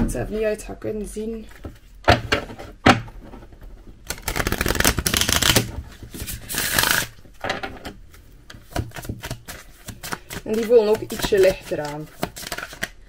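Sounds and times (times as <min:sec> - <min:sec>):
cards being shuffled: 0:04.1 - 0:07.2, 0:08.1 - 0:13.0.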